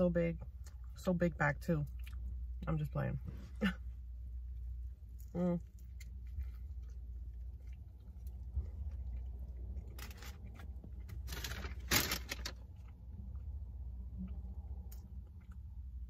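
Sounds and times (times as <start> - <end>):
steady low hum: 0.0 - 16.0
sandwich crunching: 5.1 - 13.1.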